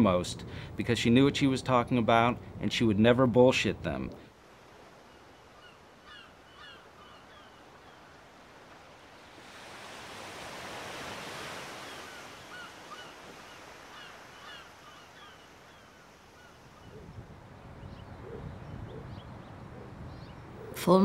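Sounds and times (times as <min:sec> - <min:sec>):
sea waves: 0:04.2 - 0:17.0
short bird calls: 0:05.1 - 0:08.1, 0:11.7 - 0:17.1.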